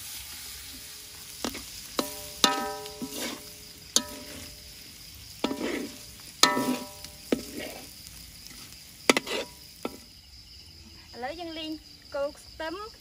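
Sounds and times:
metal spatula scraping a wok: 0.0s - 10.1s
food sizzling in hot oil: 0.0s - 10.7s.

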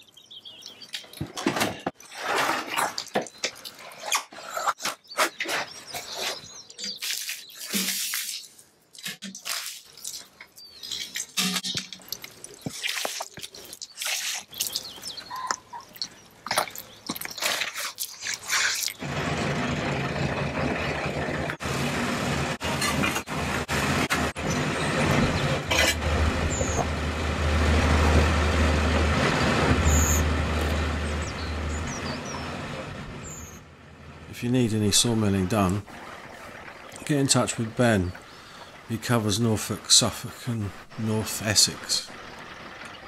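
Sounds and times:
truck engine running: 19.0s - 43.0s.

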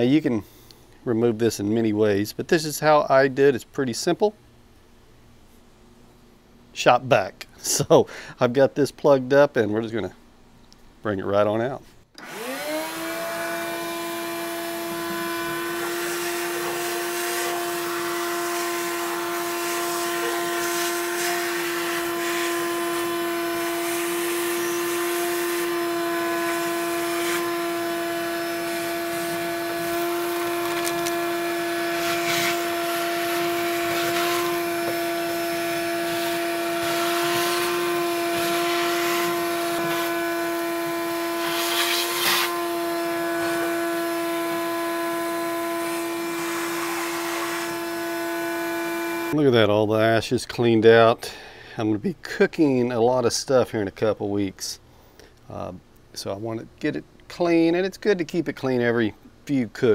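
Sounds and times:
shop vac motor whine: 12.2s - 49.4s
debris rattling up hose: 14.7s - 44.7s.

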